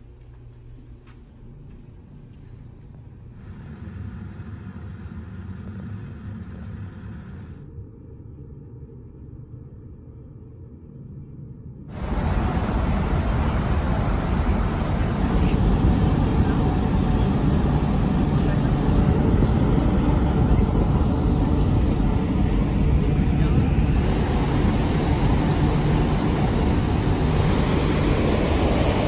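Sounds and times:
wind rushing: 0:11.9 - 0:18.2, 0:23.6 - 0:29.0
churning wake water: 0:11.9 - 0:19.2, 0:23.8 - 0:29.0
ship engine rumble: 0:11.9 - 0:29.0.

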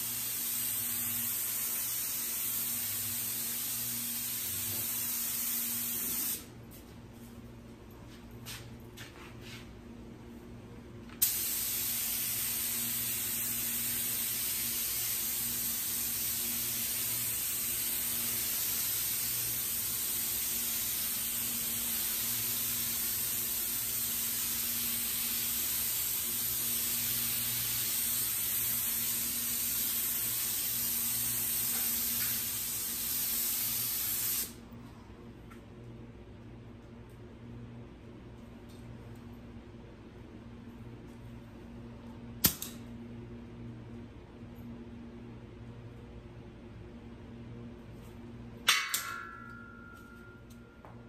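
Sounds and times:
spray gun air hiss: 0:00.0 - 0:06.5, 0:11.2 - 0:34.6.

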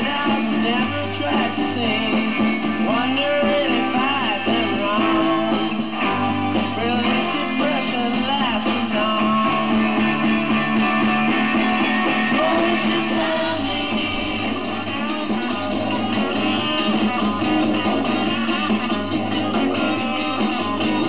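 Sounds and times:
rock music from a record: 0:00.0 - 0:21.0.

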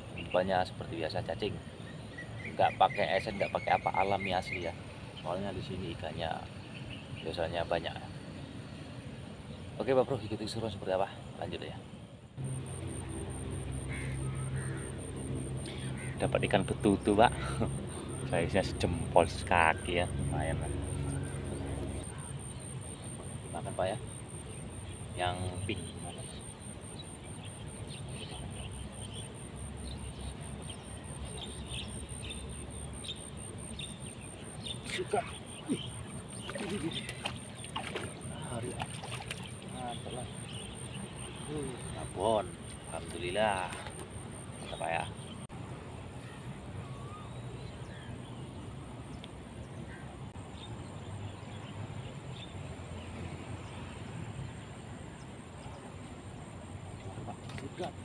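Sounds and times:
low steady rumble: 0:12.4 - 0:23.5
high pulsing tone: 0:12.4 - 0:31.3
low hum: 0:12.4 - 0:34.6
bird chirps: 0:12.4 - 0:45.5.

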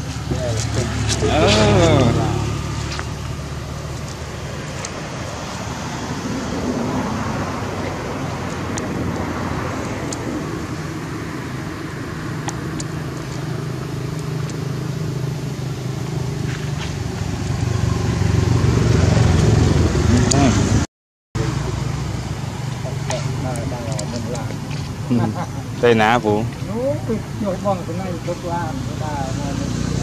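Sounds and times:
motor engine humming: 0:00.0 - 0:20.8.

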